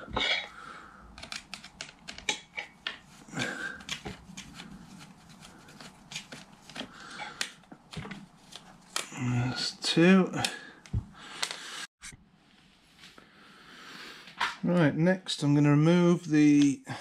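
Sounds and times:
small parts clicking and rattling: 1.1s - 3.0s.

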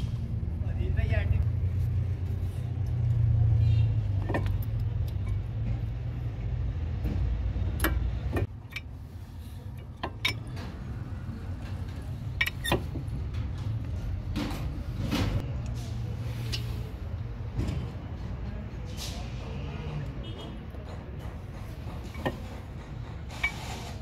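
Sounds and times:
metallic clicks of brake pads: 4.1s - 5.9s, 7.0s - 9.0s, 9.6s - 10.8s, 11.5s - 14.7s.

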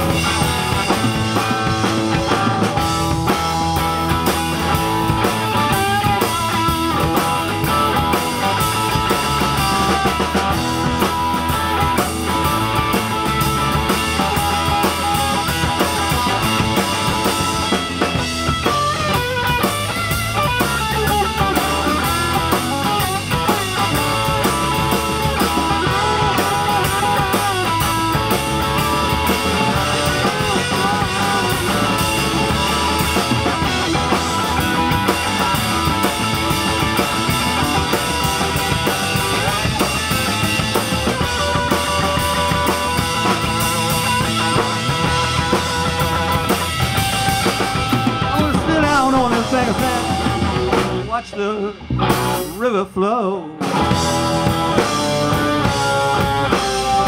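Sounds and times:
drum kit: 0.0s - 57.0s
electric bass: 0.0s - 57.0s
lead electric guitar: 0.0s - 57.0s.

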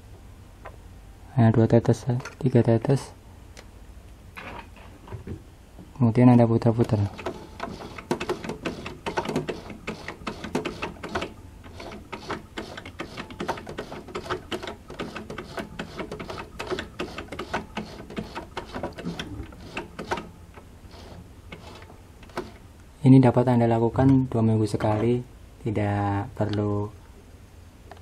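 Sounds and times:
sewing machine ticking and clattering: 7.1s - 20.3s, 20.9s - 22.6s.

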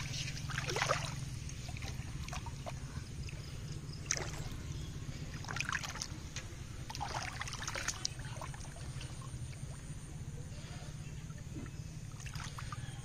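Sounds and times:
hands splashing in muddy water: 0.0s - 2.8s, 4.0s - 6.2s, 6.9s - 9.2s
low rumble: 0.0s - 13.0s.

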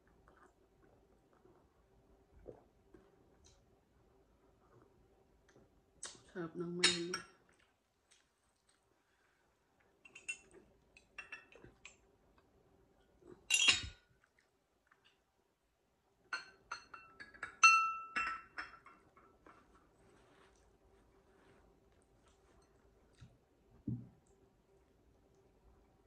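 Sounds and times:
china clinking: 16.4s - 18.9s.

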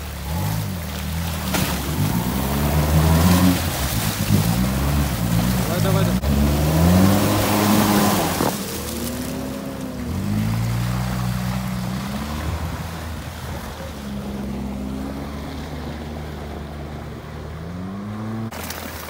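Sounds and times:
car engine revving hard: 0.2s - 13.5s.

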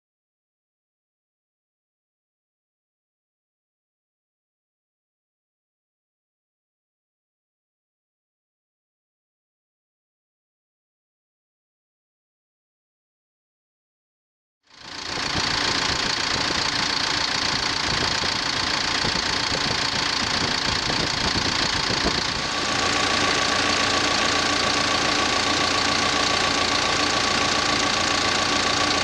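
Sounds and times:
diesel engine running: 14.7s - 29.0s
steady hum: 15.1s - 29.0s.

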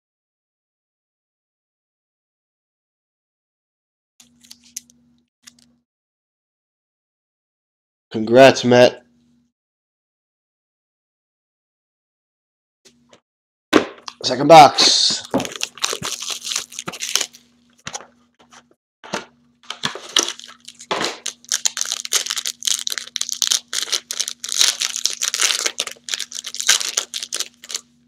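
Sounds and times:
plastic wrapper crinkling and tearing: 15.2s - 17.4s, 19.6s - 27.9s.

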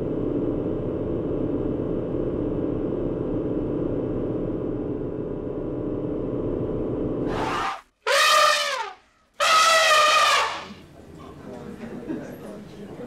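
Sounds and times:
horn-like wah calls: 7.3s - 10.8s.

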